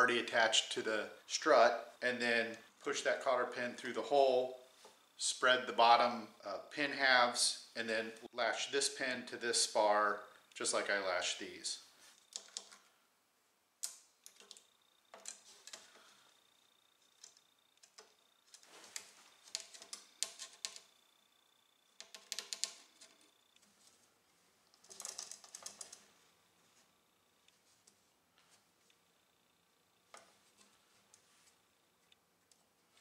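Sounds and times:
small metal clicks and scrapes: 0:17.1 - 0:20.9, 0:24.7 - 0:26.0.

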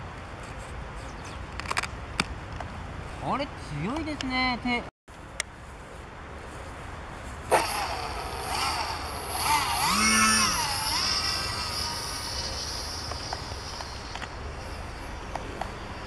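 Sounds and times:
model plane electric motor whine: 0:07.5 - 0:15.0.

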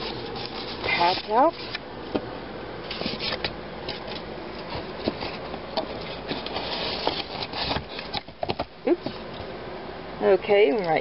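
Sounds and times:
styrofoam scraping against cardboard: 0:00.0 - 0:01.8, 0:06.1 - 0:08.2.

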